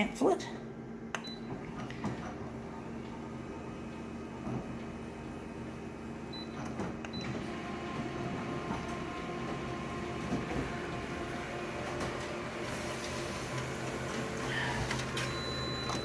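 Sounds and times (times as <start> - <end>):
photocopier mechanical whir: 1.2 - 16.0
short electronic beeps: 15.3 - 16.0.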